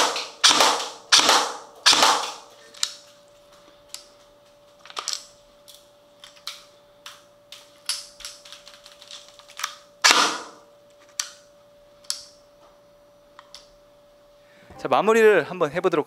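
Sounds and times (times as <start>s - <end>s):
airsoft gun firing single shots: 0.0s - 2.4s, 10.0s - 10.6s.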